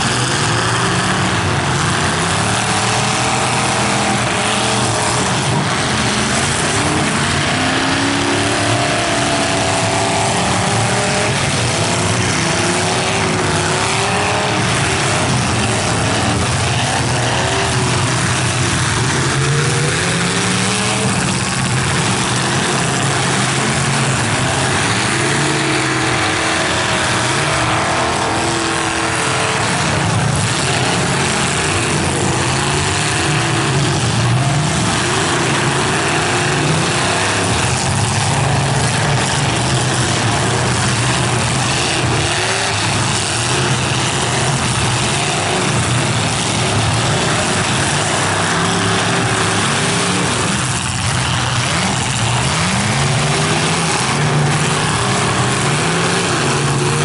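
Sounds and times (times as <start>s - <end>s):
car engines revving hard: 0.0s - 57.0s.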